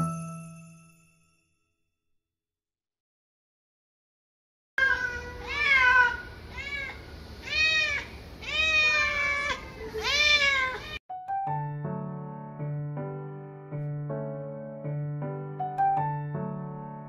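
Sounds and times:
cat meowing: 4.8s - 11.0s.

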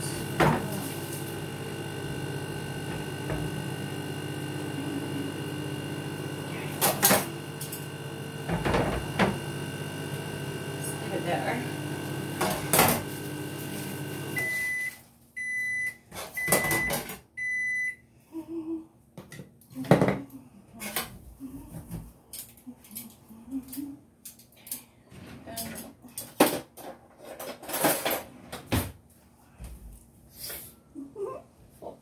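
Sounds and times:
microwave humming: 0.0s - 18.0s
microwave beeps: 11.7s - 18.0s.

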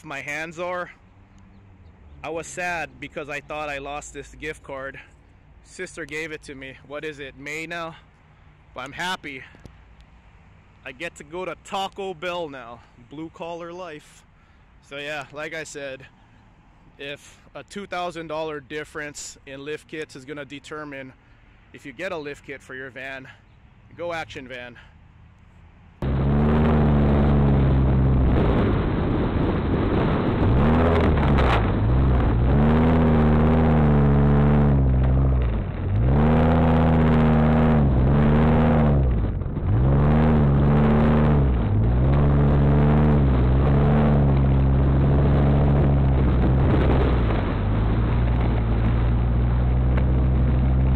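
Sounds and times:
tyre and road noise: 0.0s - 50.9s
van engine revving: 26.0s - 50.9s.

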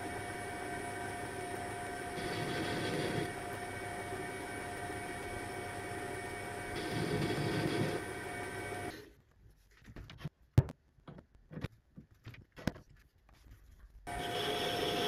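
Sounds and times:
metal lathe whining: 0.0s - 8.9s, 14.1s - 15.0s.

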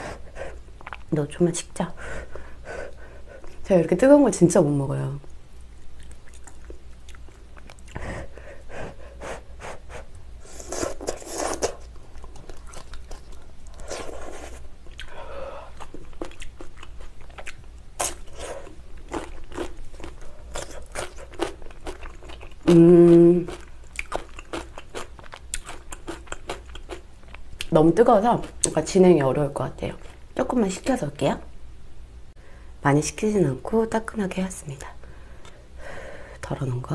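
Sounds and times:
crunching and chewing: 0.8s - 1.1s, 5.8s - 8.0s, 10.5s - 27.7s.

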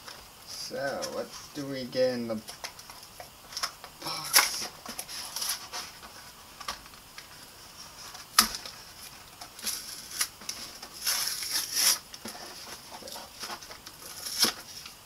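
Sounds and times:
packaging rustling: 2.4s - 15.0s.

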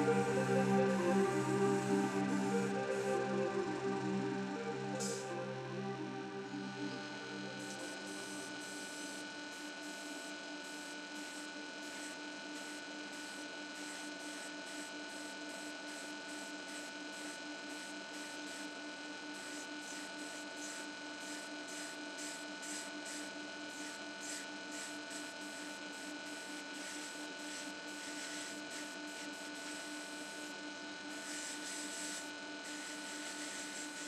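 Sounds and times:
electrical hum: 0.0s - 8.9s.

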